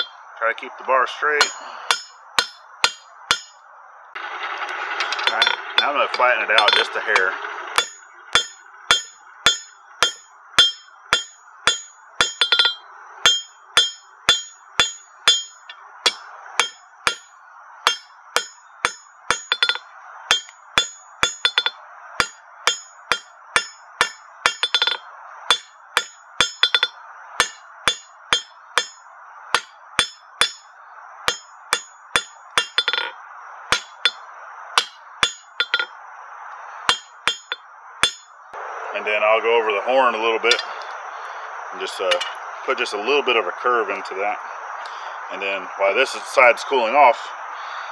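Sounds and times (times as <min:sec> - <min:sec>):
hammer striking steel on anvil: 0:01.4 - 0:03.6, 0:05.0 - 0:34.2, 0:34.8 - 0:36.0, 0:36.8 - 0:38.3, 0:40.5 - 0:40.8.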